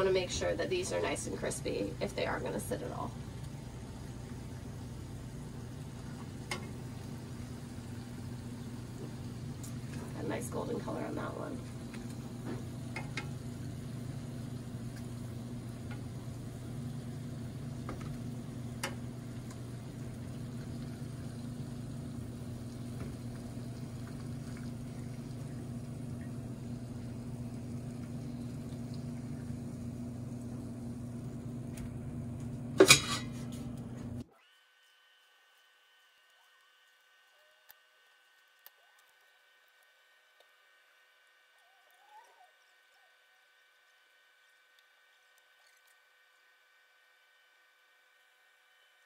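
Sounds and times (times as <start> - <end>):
low hum: 0.0 - 34.3
food sizzling in hot oil: 11.6 - 33.3.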